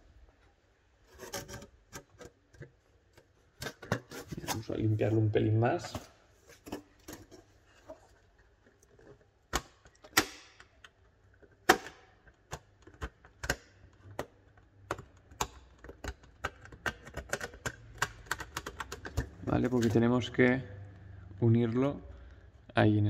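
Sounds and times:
metal tool scraping circuit board: 1.1 - 2.3.

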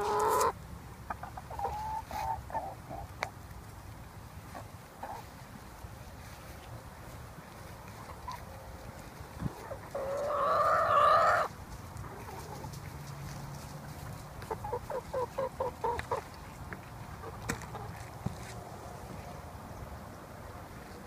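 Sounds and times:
chicken long drawn-out call: 0.0 - 0.6, 1.2 - 3.1, 9.4 - 11.5
chicken short clucks: 0.0 - 3.3, 14.4 - 16.4.

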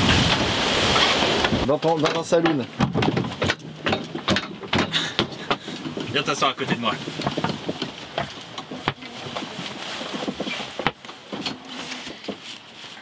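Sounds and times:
clicks and knocks: 1.4 - 9.5
steady cabin hiss: 3.5 - 13.0.

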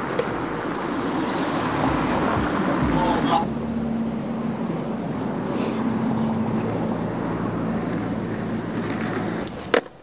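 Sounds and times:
low rumble of traffic: 0.0 - 10.0.

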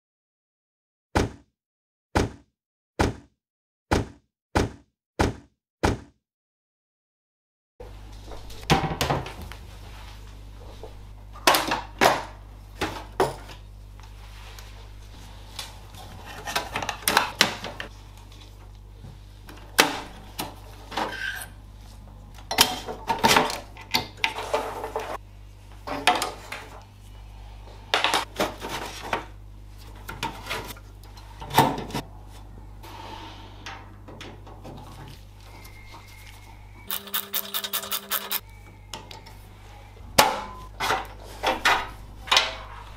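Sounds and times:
steady low hum: 7.8 - 42.9
screwdriver clicking: 36.9 - 38.4.

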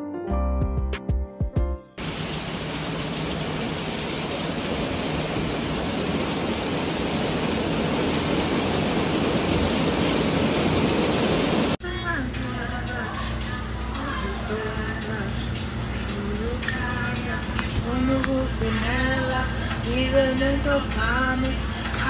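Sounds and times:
rain falling on wet paving: 2.0 - 11.8.

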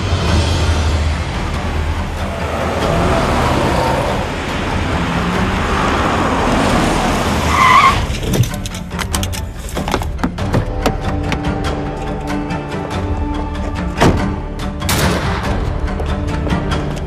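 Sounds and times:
tyres skidding and squealing: 0.0 - 9.9
car driving and braking: 0.0 - 17.0.

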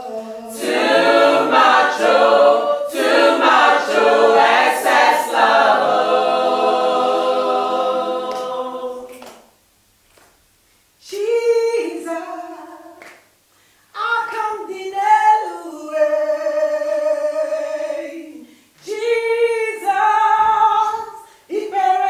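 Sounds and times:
group singing unaccompanied: 0.0 - 9.5, 11.1 - 13.2
woman singing alone: 11.0 - 13.0, 14.0 - 22.0.

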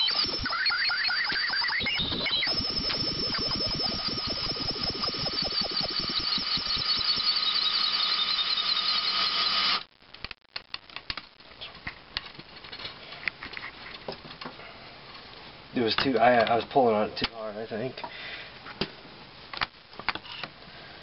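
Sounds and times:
electric drill running: 0.0 - 9.9
high squeal and rapid ticking: 0.0 - 9.9.

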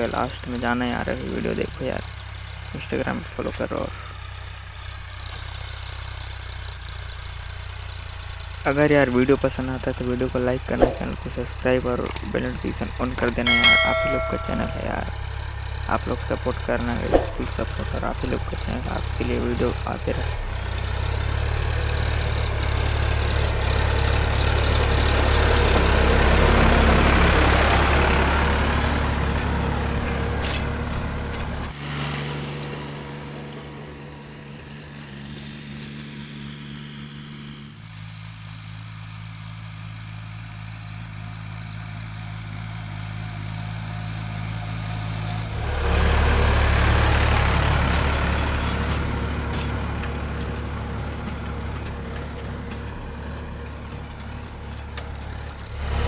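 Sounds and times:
tractor diesel engine running: 0.0 - 31.8, 32.8 - 56.0.

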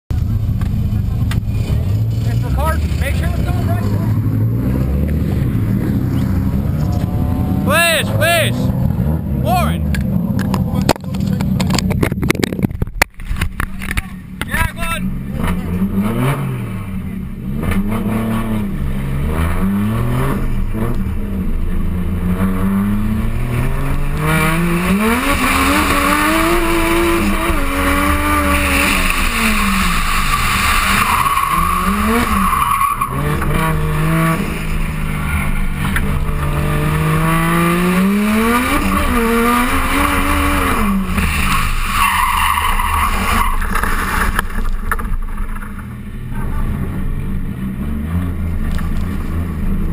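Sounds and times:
car engine revving hard: 15.0 - 45.3
tyres squealing: 24.3 - 34.2.

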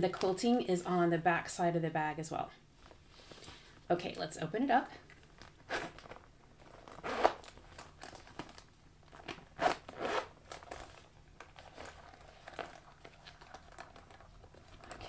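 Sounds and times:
leather rustling: 5.2 - 15.0
metal zipper pulled open: 5.6 - 8.1, 9.1 - 11.0.

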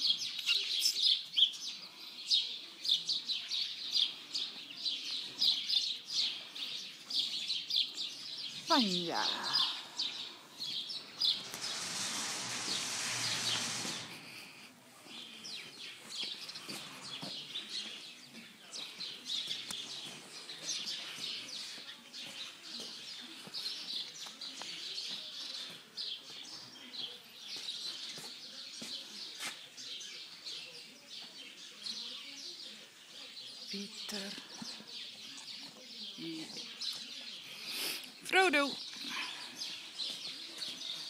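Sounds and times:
small birds chirping: 0.0 - 41.0
noisy rustle: 9.4 - 14.7.

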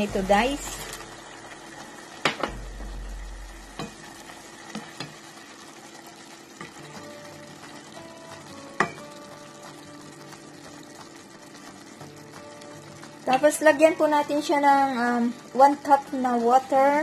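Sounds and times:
meat sizzling in a pot: 0.0 - 17.0
wooden spoon knocking on pot: 8.4 - 9.6.

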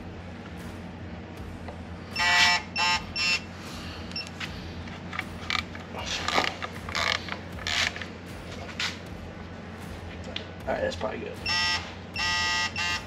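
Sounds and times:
torque wrench beeping: 2.1 - 3.5, 11.4 - 13.0.

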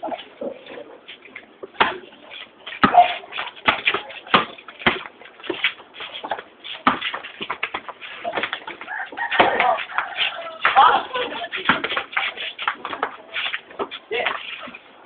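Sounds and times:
shuffling feet: 0.0 - 15.0
basketball bouncing on concrete: 2.8 - 5.5, 6.2 - 14.4.

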